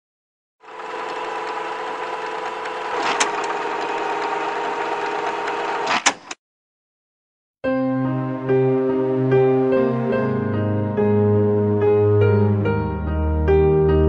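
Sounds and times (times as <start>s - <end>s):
mechanical hum: 0.6s - 6.0s
clicks: 2.2s - 4.4s, 5.1s - 6.4s.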